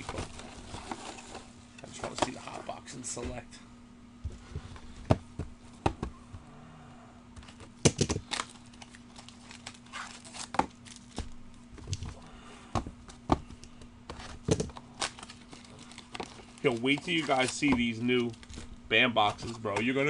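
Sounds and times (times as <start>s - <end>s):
low hum: 0.0s - 14.1s
taps and knocks on cardboard: 5.0s - 6.2s
packaging crinkling: 7.4s - 12.0s, 14.2s - 20.0s.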